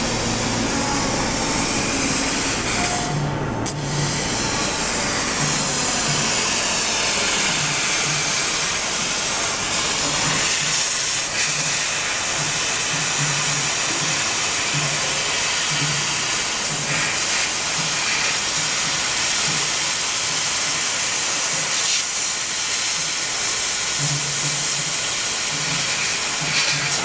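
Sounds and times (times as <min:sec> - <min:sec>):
low pulsing hum: 0:00.0 - 0:10.2
laser cutter hissing: 0:00.0 - 0:27.0.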